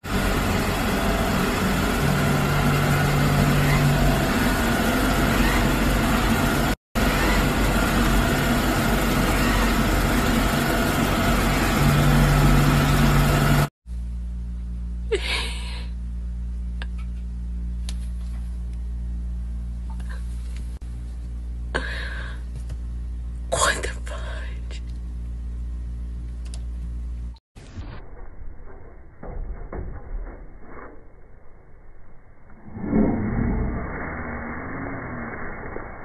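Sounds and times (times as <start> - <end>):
robot vacuum cleaner running: 0.0 - 13.7
low hum: 0.0 - 36.0.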